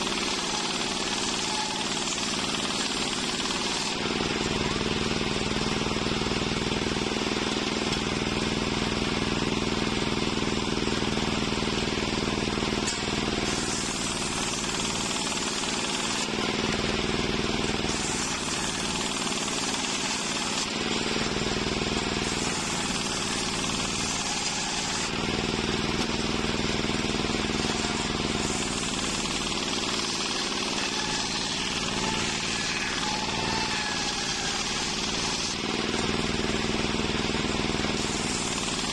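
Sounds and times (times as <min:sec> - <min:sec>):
saw cutting planks: 0:00.0 - 0:38.9
circular saw humming: 0:12.8 - 0:38.9.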